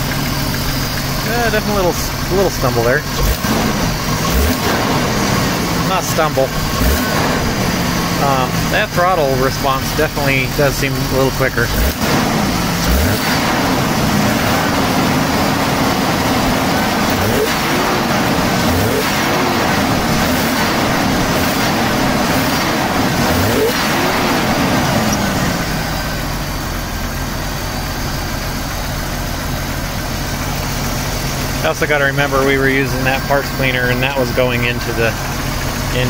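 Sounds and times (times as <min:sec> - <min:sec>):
car engine revving and idling: 0:00.0 - 0:36.0.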